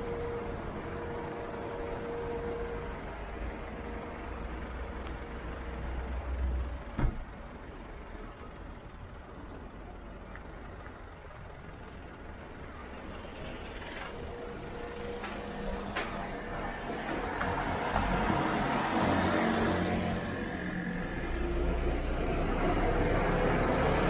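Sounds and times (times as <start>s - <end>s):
low vehicle rumble: 0.0s - 24.0s.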